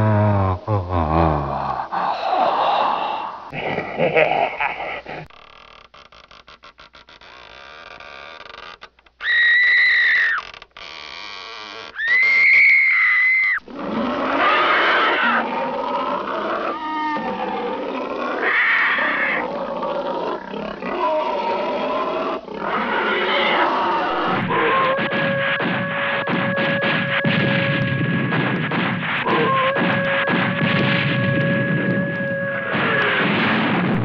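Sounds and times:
monster growls: 0:00.0 - 0:03.9.

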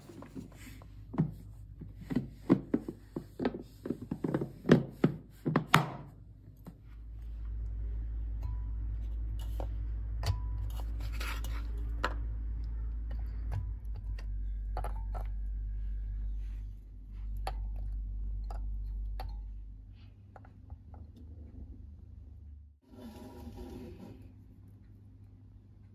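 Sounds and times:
steady low hum: 0:06.1 - 0:22.8.

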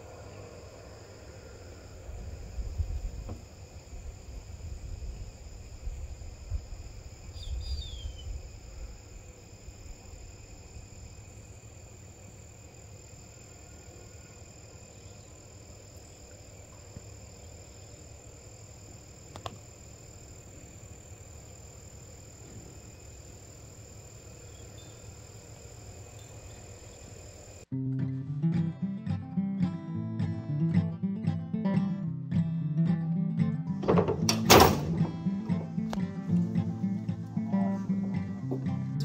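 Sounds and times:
low rumble on microphone: 0:00.0 - 0:11.3
high-pitched insect chorus: 0:00.0 - 0:27.7
sharp click: 0:19.3 - 0:19.6.

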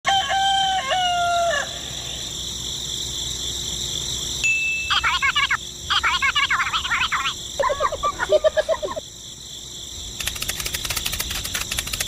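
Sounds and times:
rooster crowing: 0:00.0 - 0:02.2
fast high chirping calls: 0:04.8 - 0:09.0.

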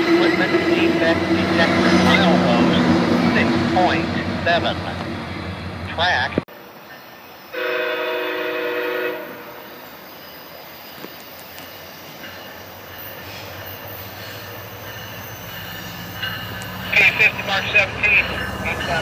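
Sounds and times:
locomotive engine hum: 0:00.0 - 0:19.0
train rumble: 0:00.0 - 0:19.0
locomotive air horn: 0:07.5 - 0:09.6.

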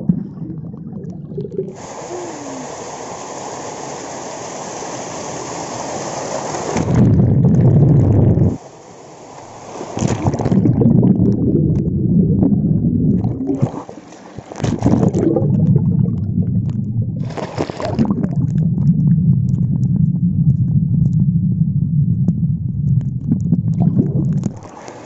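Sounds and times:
muffled underwater waterfall rumble: 0:00.0 - 0:25.0
water splash: 0:01.2 - 0:08.6, 0:09.4 - 0:18.6.

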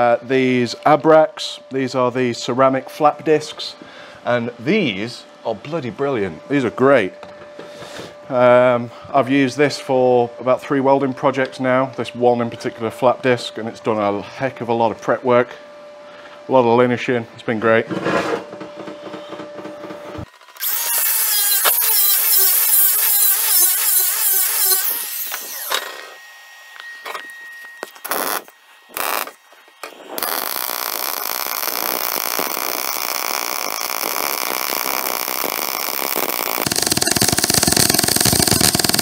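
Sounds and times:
hissing welding arc: 0:20.6 - 0:26.2, 0:27.8 - 0:39.0
welding arc strikes: 0:20.6 - 0:26.2, 0:26.8 - 0:39.0
loud warbling whir: 0:28.0 - 0:39.0.

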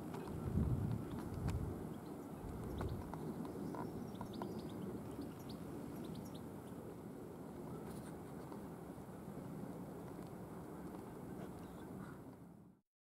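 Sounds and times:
birds chirping: 0:00.0 - 0:06.8
wind: 0:00.0 - 0:12.8.

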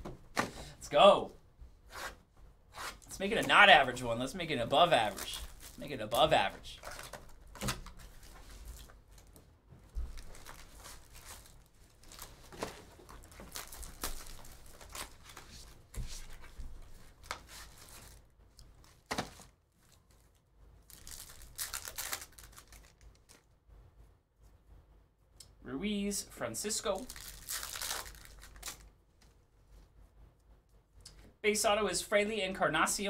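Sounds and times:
wrappers tearing and crinkling: 0:04.6 - 0:09.3, 0:10.1 - 0:15.8, 0:17.1 - 0:23.5, 0:27.0 - 0:28.9.

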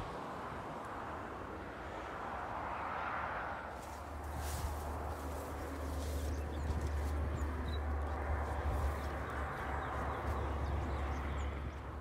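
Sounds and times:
wind buffeting microphone: 0:04.0 - 0:12.0.

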